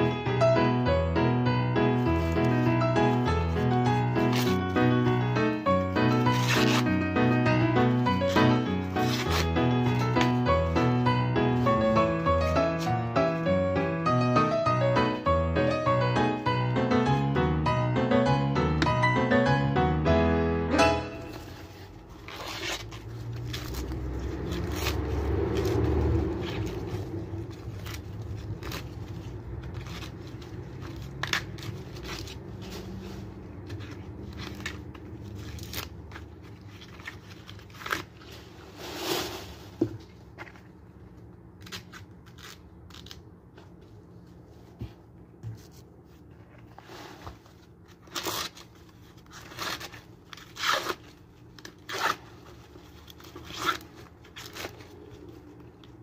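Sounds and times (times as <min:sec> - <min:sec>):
corn husks tearing: 0:06.2 - 0:07.0, 0:21.9 - 0:33.0.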